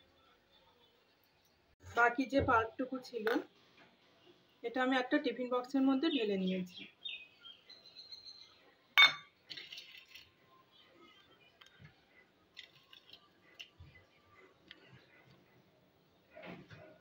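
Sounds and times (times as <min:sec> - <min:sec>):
metallic clink against steel dish: 0:09.0 - 0:09.3.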